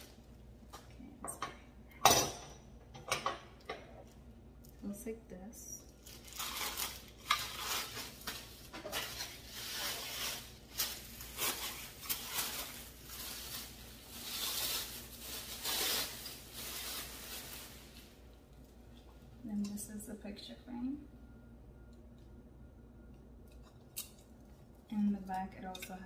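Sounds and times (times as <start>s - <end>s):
plastic wrapping crinkling: 5.8s - 18.8s.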